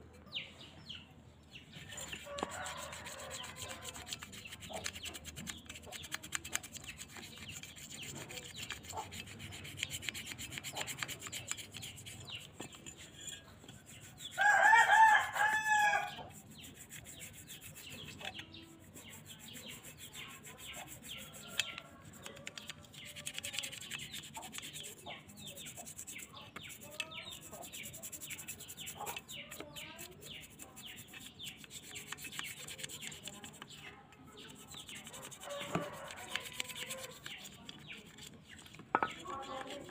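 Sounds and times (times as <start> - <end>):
toothbrush scrubbing metal: 1.8 - 39.9
rooster crowing: 14.4 - 16.2, 35.4 - 37.1.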